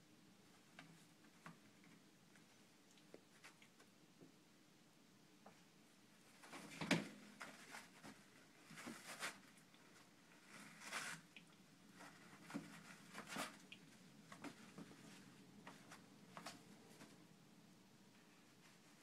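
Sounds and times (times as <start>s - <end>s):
toilet paper rustling and tearing: 6.4s - 11.3s.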